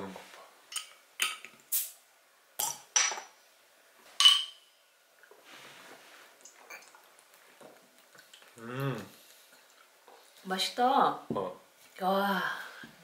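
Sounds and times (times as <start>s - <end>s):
glass bottles clinking: 2.6s - 3.4s, 4.2s - 4.7s
faint drinking: 5.2s - 10.7s.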